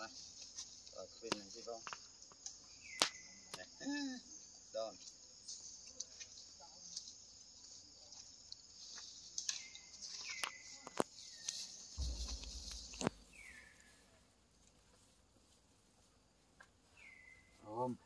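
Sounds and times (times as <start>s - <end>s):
insect chorus: 0.0s - 18.0s
low rumble: 12.0s - 13.9s.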